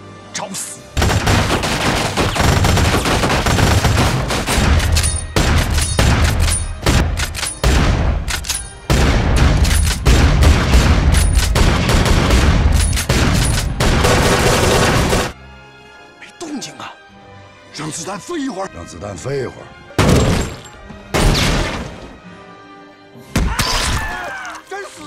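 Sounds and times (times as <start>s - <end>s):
rapid rifle fire: 1.0s - 8.0s, 8.9s - 15.4s.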